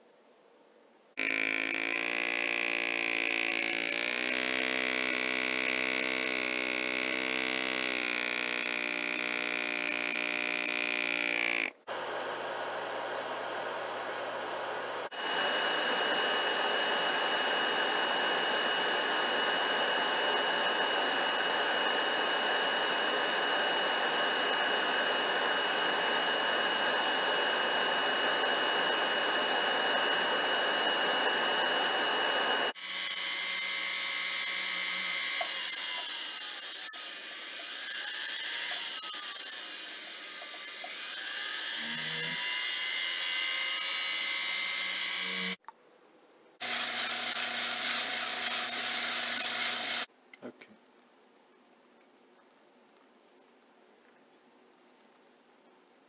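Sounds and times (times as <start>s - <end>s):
rotary tool whining: 1.2s - 11.8s, 15.1s - 45.6s, 46.6s - 50.1s.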